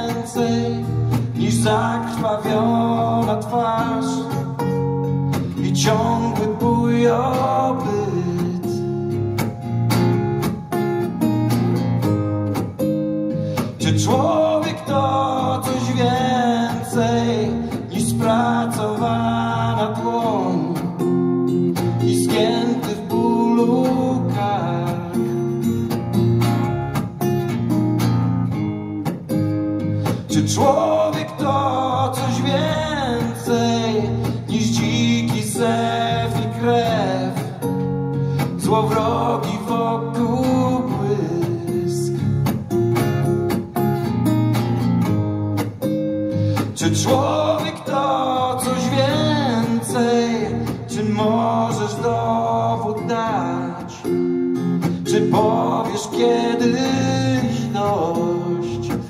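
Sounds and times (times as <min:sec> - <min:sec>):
man singing: 0:00.0 - 0:04.8, 0:05.4 - 0:09.0, 0:13.7 - 0:21.2, 0:21.8 - 0:25.6, 0:30.1 - 0:42.4, 0:46.6 - 0:54.2, 0:54.9 - 0:59.0
acoustic guitar: 0:00.0 - 0:59.0.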